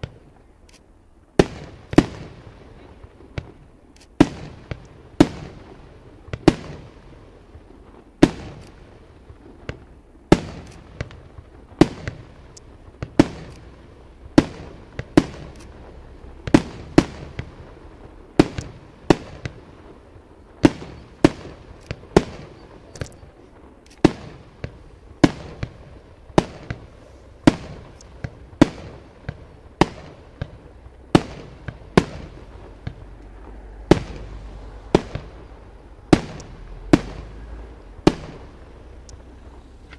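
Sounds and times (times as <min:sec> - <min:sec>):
firework shells bursting: 0:07.6 - 0:20.0, 0:20.6 - 0:39.9.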